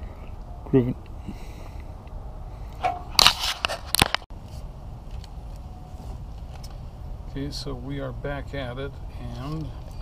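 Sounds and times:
wires rustling and scraping: 2.6 - 6.9, 9.1 - 10.0.

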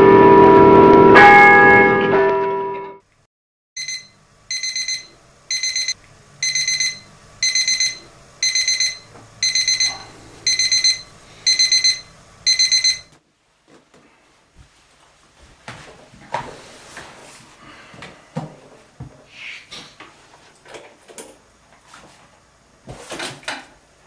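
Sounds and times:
alarm clock beeping: 3.8 - 13.1.

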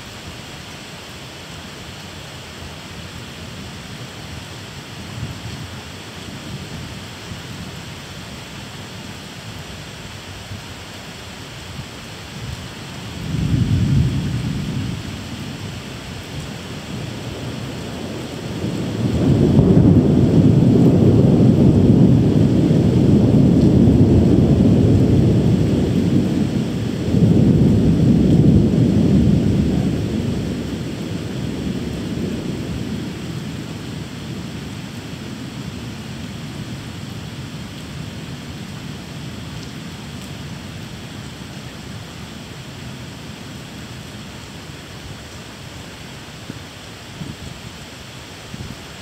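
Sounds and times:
steady rain: 0.0 - 49.0
thunder rumbling: 12.4 - 43.8.

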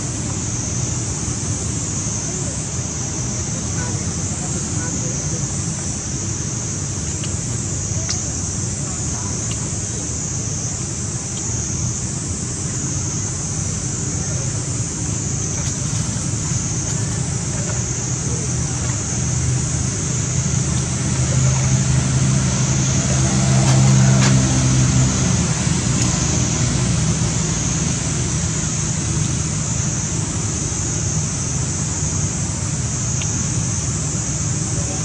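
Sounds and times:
high-pitched outdoor hiss: 0.0 - 35.0
vehicle engine passing by: 15.7 - 29.7.

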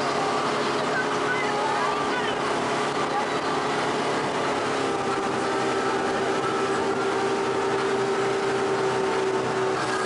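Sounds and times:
outboard motor running: 0.0 - 10.0
rushing wake water: 0.0 - 10.0
wind: 0.0 - 10.0.

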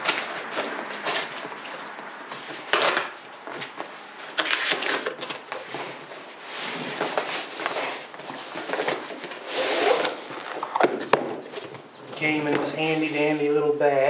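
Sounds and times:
cardboard box rustling and scraping: 0.0 - 10.3.

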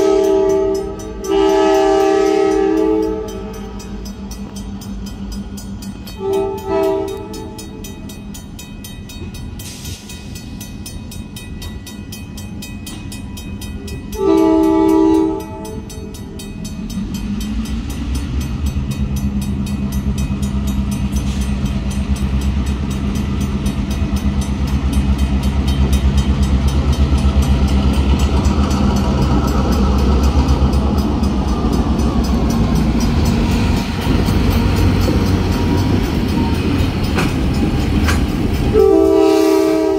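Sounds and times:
locomotive horn: 0.0 - 3.8, 6.2 - 7.8, 14.2 - 16.1, 38.6 - 39.9
crossing bell ringing: 0.0 - 39.9.

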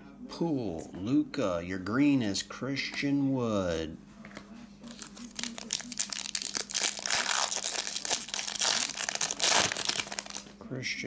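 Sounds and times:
foil pack crinkling and tearing: 4.9 - 10.6.

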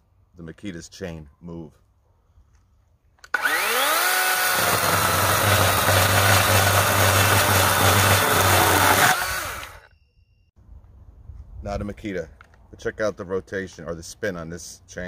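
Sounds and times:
battery chainsaw motor whine: 3.3 - 9.9
chainsaw cutting wood: 3.3 - 9.9.

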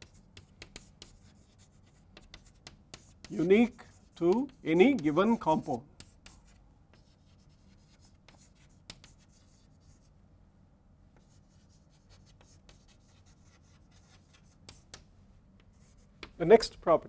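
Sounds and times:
sharp chalk tap: 0.0 - 1.4, 2.1 - 5.2, 7.8 - 9.6, 12.2 - 16.4
chalk scratching on blackboard: 0.0 - 10.1, 11.2 - 15.0, 15.7 - 16.3
low room hum: 0.0 - 17.0.

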